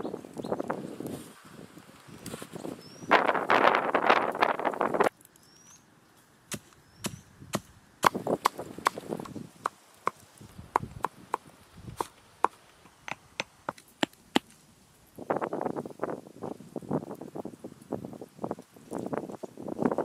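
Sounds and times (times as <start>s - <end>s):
blade chopping into wood: 6.5s - 11.4s.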